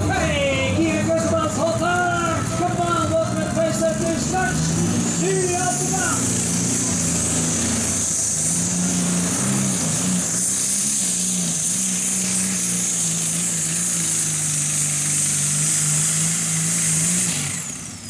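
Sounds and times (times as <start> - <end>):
tractor engine running under load: 0.0 - 18.0.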